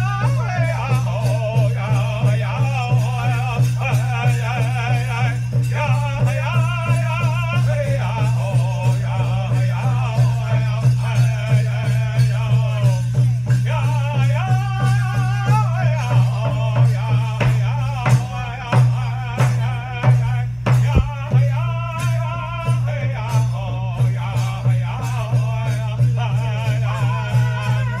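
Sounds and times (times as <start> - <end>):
group singing: 0.0 - 28.0
steady drumbeat: 0.0 - 28.0.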